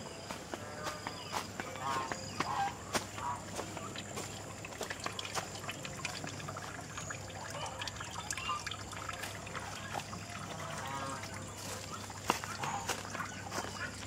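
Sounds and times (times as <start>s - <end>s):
water trickling and pouring: 3.2s - 14.0s.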